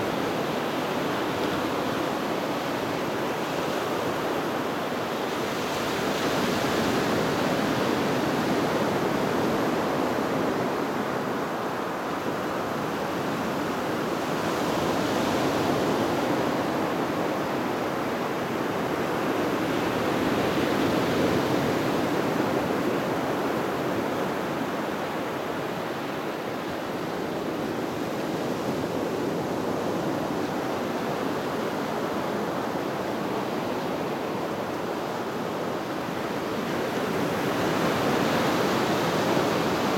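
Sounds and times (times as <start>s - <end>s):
ocean surf washing on beach: 0.0s - 39.9s.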